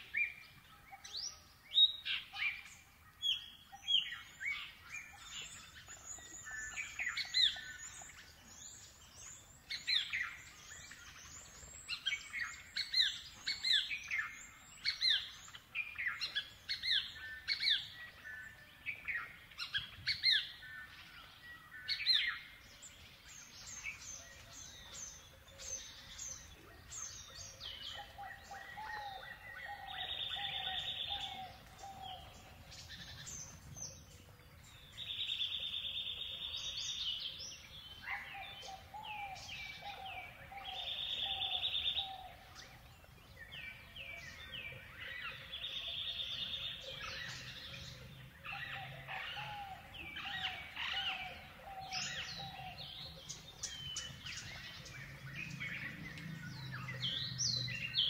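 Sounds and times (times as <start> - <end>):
birds chirping: 0.0 - 58.0.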